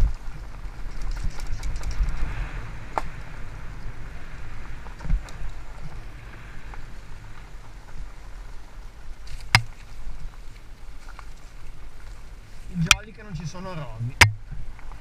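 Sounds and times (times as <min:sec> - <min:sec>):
wind on microphone: 0:00.0 - 0:10.3
bike tyre noise on dirt: 0:00.0 - 0:15.0.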